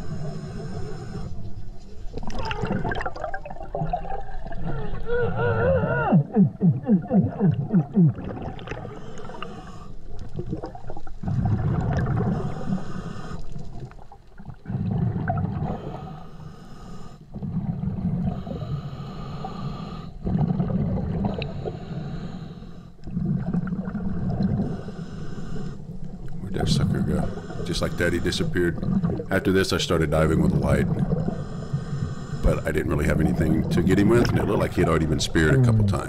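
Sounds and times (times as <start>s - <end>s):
regulator hiss on inhale: 0.0s - 1.8s, 8.9s - 10.2s, 12.4s - 13.7s, 15.7s - 17.3s, 18.3s - 20.2s, 21.3s - 23.0s, 24.6s - 26.1s, 26.9s - 28.6s, 31.2s - 32.8s
burble of bubbles rushing: 2.1s - 5.0s, 6.4s - 9.0s, 10.2s - 12.4s, 13.7s - 15.8s, 20.2s - 21.5s, 23.1s - 24.7s, 28.7s - 29.4s
exhaled bubbles rumbling: 2.1s - 12.8s, 13.5s - 16.1s, 17.3s - 18.7s, 20.2s - 21.8s, 23.0s - 24.9s, 25.9s - 31.5s, 32.4s - 36.0s.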